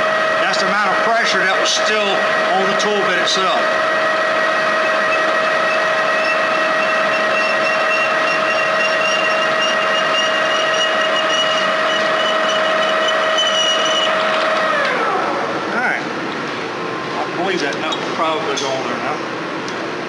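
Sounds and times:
metal lathe whining: 0.0 - 15.7.

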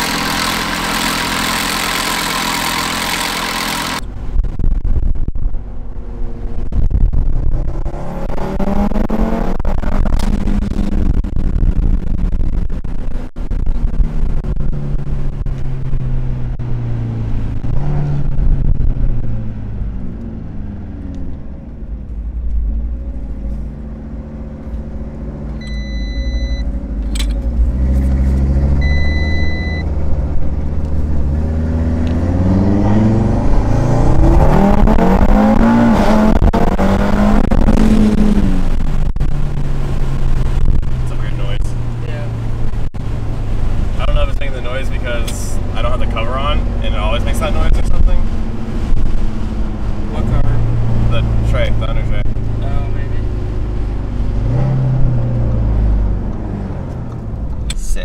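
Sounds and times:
car engine revving under load: 0.0 - 4.7, 5.3 - 58.0
electronic beep: 25.6 - 26.7, 28.8 - 29.9.

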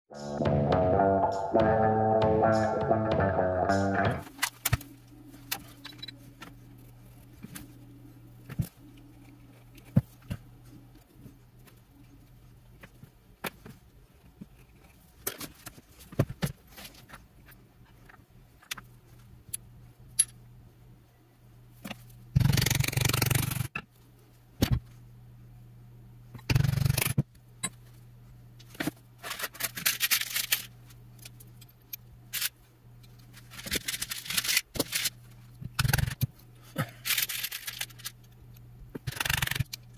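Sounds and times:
steady low hum: 0.1 - 15.2.

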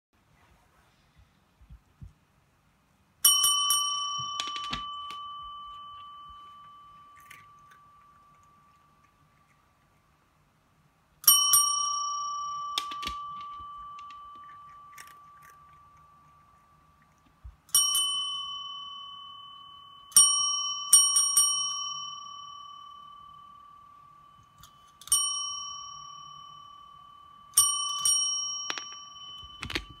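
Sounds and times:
desk service bell dings: 3.2 - 6.9, 25.1 - 30.0.

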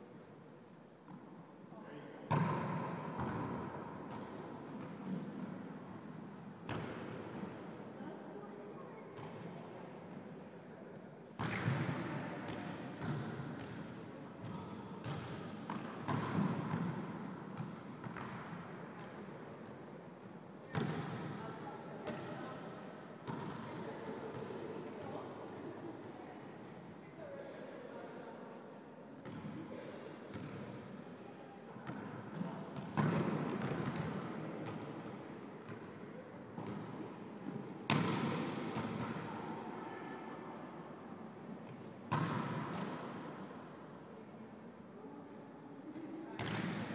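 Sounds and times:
volleyball slaps echoing: 2.3 - 5.6, 11.4 - 16.9, 20.7 - 21.4, 32.8 - 35.0, 36.6 - 39.3, 41.7 - 43.2, 46.4 - 46.9.

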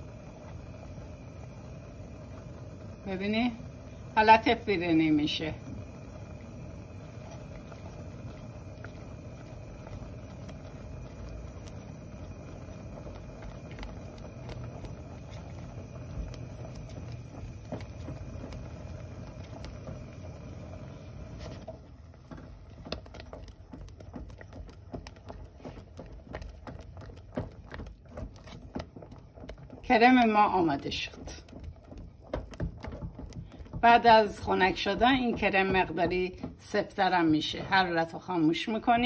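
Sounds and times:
gas stove hiss: 0.0 - 21.7
cream popping and clicking: 0.0 - 37.6
spatula stirring in saucepan: 0.0 - 39.0.

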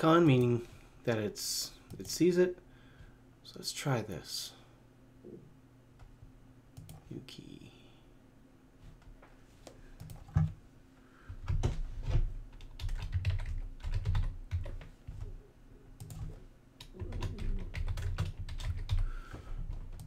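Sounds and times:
typing on computer keyboard: 12.5 - 15.3, 16.0 - 19.1.

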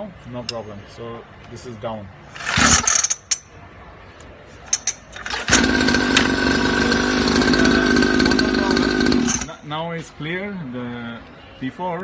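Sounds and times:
pull-start cord pull: 4.8 - 6.9
small two-stroke engine idling: 5.2 - 9.6.

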